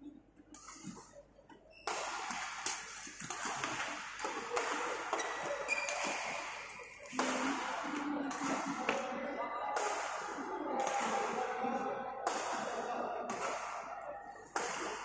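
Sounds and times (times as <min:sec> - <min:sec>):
sports hall background din: 0:00.0 - 0:15.0
racket striking shuttlecock: 0:01.8 - 0:09.1, 0:09.8 - 0:11.3, 0:12.2 - 0:15.0
shoe squeak on court floor: 0:05.2 - 0:06.3.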